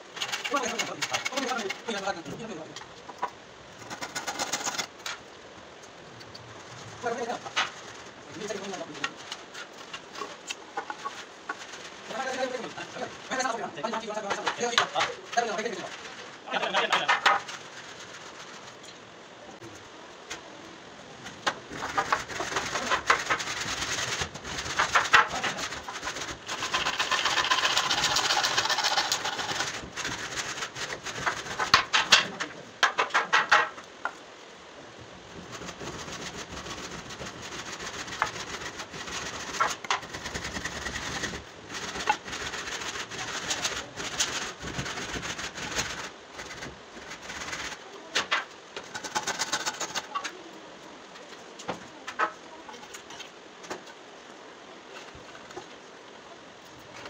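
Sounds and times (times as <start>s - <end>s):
wood scraping: 0.0s - 34.2s, 35.0s - 50.5s, 51.1s - 54.0s
wood knocking against wood: 16.8s - 17.5s, 31.2s - 34.2s.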